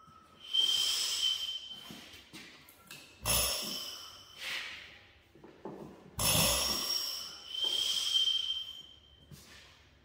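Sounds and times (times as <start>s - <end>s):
whooshing puff with ringing tone: 0.0s - 2.1s, 3.2s - 4.9s, 6.2s - 9.6s.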